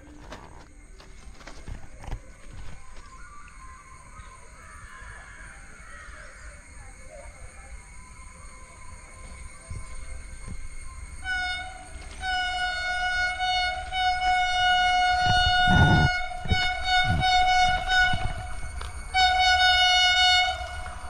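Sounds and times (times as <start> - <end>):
low train rumble: 0.0 - 21.0
train horn blasts: 11.2 - 21.0.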